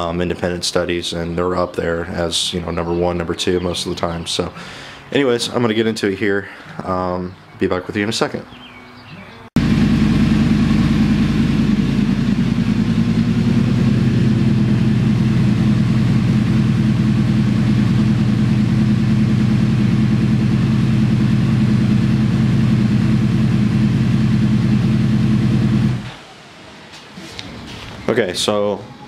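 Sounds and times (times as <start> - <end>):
motorcycle engine idling: 9.6 - 26.1.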